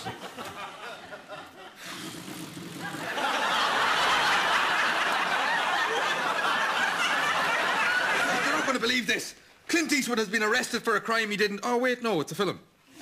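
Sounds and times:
studio audience laughing: 0:00.0 - 0:01.9, 0:02.6 - 0:08.9.

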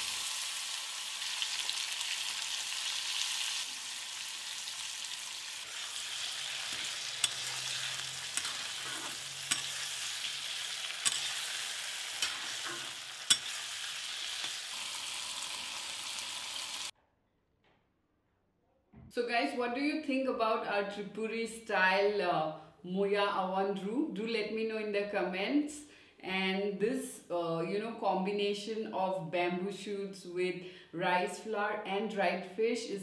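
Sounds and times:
potatoes sizzling in hot oil: 0:00.0 - 0:16.9.

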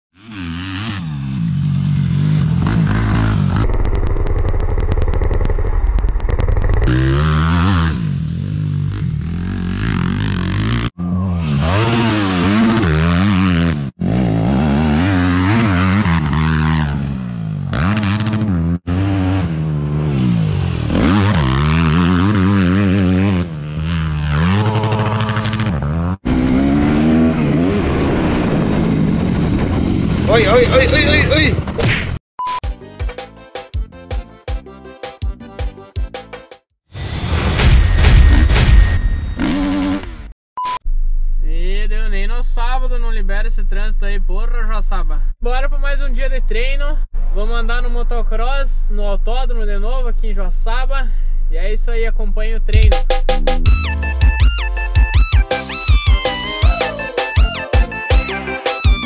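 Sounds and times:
dirt bike engine revving: 0:00.2 - 0:30.9.

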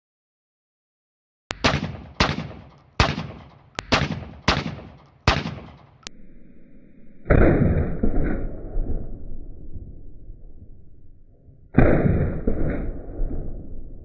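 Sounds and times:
shotgun shots echoing: 0:01.5 - 0:06.1.

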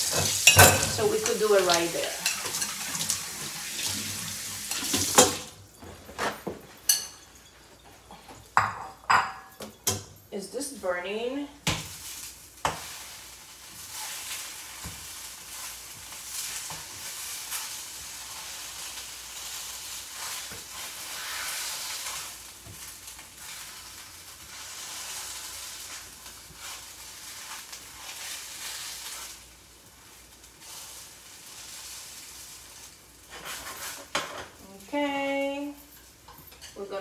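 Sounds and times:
food sizzling in a pan: 0:00.0 - 0:05.6, 0:06.9 - 0:37.0
utensil scraping a pan: 0:15.5 - 0:22.5, 0:33.2 - 0:34.5.

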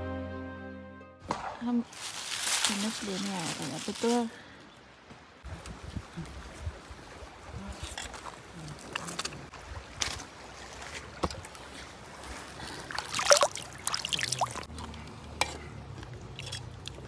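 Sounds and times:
water splashing in stream: 0:05.2 - 0:17.0.

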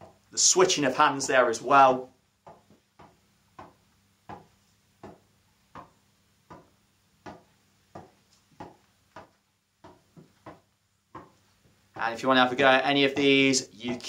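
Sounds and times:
tennis ball bouncing on racket: 0:02.4 - 0:12.2.

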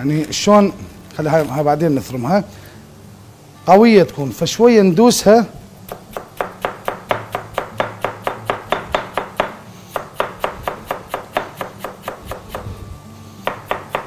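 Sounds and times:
knife chopping on cutting board: 0:05.9 - 0:12.7, 0:13.4 - 0:14.0.

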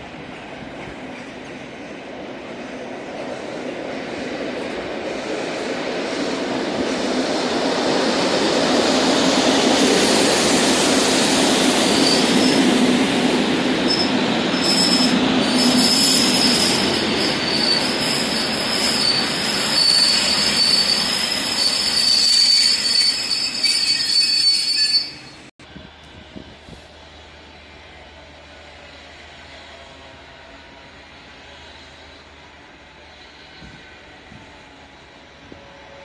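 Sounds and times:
train rumbling: 0:00.0 - 0:36.0
high-pitched wheel squeal: 0:11.9 - 0:12.6, 0:13.9 - 0:25.5.

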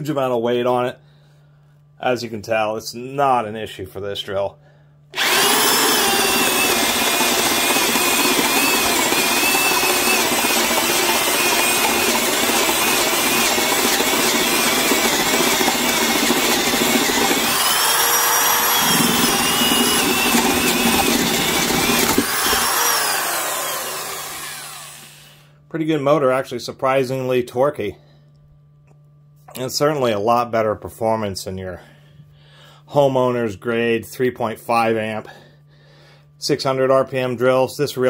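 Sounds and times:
drill boring into wood: 0:05.2 - 0:25.2.

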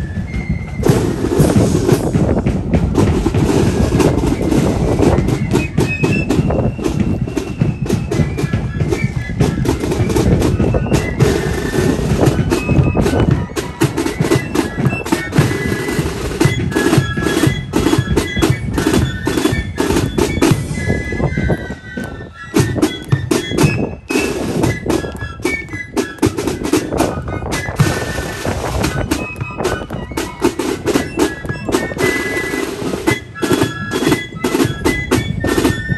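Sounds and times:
snare drums rattling: 0:00.0 - 0:35.9
high melody line: 0:02.9 - 0:35.9.

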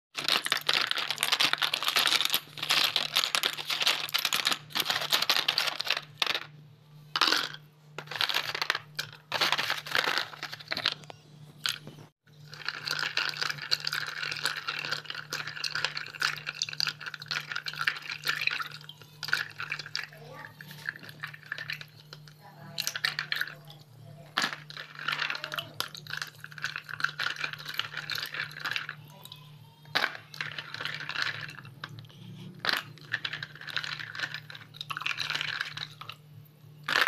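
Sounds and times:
pieces rattled in bowl of water: 0:00.2 - 0:06.6, 0:07.2 - 0:11.0, 0:11.6 - 0:37.0
slate pieces clinking in plastic box: 0:00.2 - 0:06.6, 0:07.2 - 0:11.8, 0:12.5 - 0:20.1, 0:24.4 - 0:29.1, 0:29.9 - 0:36.2.

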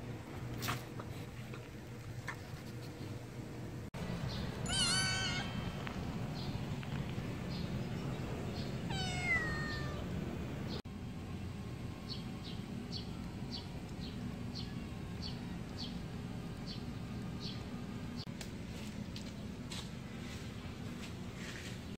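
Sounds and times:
young cat meowing: 0:04.6 - 0:05.8, 0:08.9 - 0:10.1.

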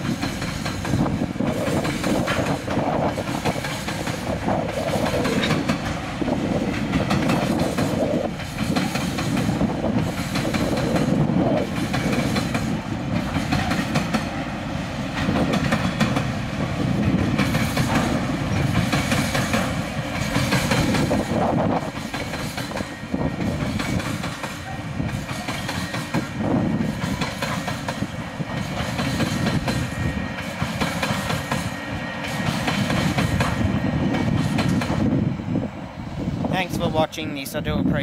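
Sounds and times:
train wheels clicking over rail joints: 0:00.0 - 0:35.2.

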